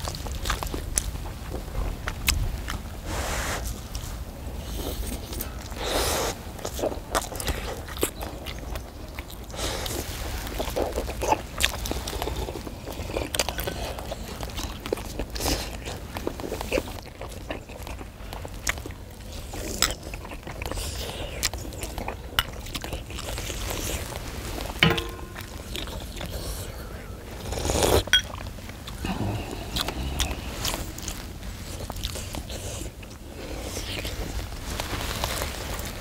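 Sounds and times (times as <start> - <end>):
people chewing and slurping: 0.0 - 36.0
low steady rumble: 23.2 - 36.0
clicks of skewers and bowls: 24.8 - 26.3.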